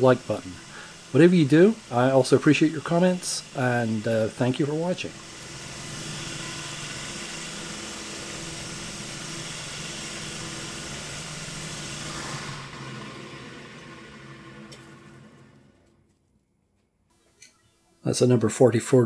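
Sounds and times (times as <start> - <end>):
drill cutting metal hiss: 0.0 - 13.4
lathe spindle humming: 0.0 - 15.8.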